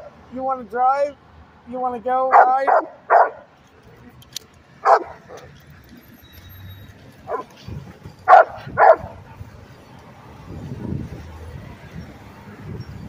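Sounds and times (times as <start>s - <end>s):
large dog barking: 2.3s - 3.5s, 4.8s - 5.6s, 7.3s - 7.6s, 8.2s - 9.4s.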